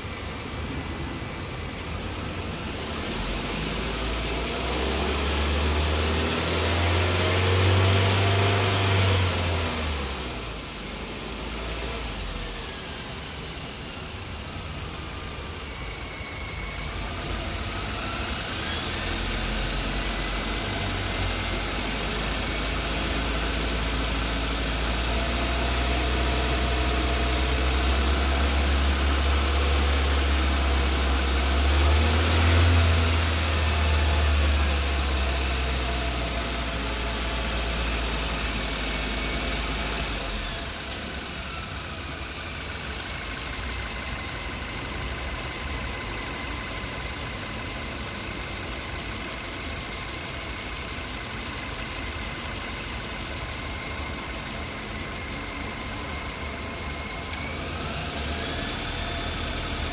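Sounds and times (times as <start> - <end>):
faint engine whine: 0.0 - 6.1, 9.1 - 30.5
car engine idling: 0.0 - 59.9.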